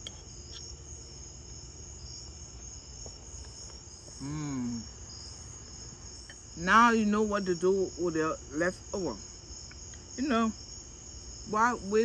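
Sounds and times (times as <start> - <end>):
crickets chirping: 0.0 - 12.0
person humming mm: 4.2 - 4.9.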